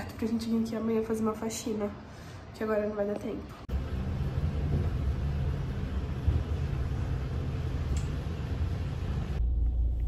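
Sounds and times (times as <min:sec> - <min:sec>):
elevator car humming: 0:03.7 - 0:10.0.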